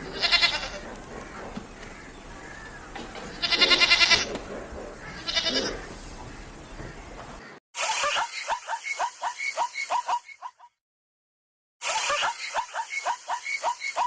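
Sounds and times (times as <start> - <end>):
antelope pulsing bleat: 0.0 - 1.0, 3.2 - 6.0.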